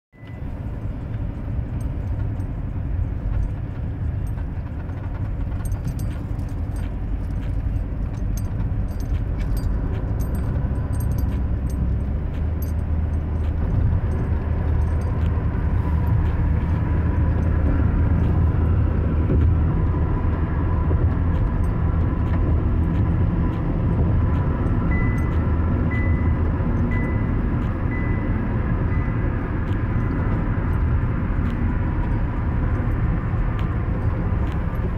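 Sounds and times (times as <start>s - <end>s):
car tyre and engine rumble: 0.2s - 34.9s
faint short beep: 25.0s - 26.4s.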